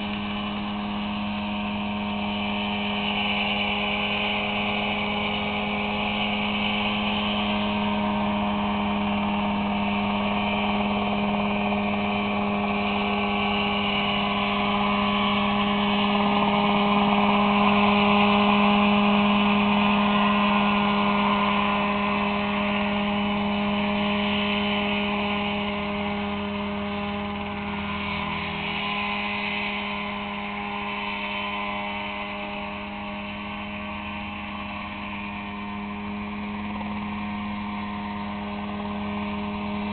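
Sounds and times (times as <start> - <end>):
helicopter hovering: 0.0 - 39.9.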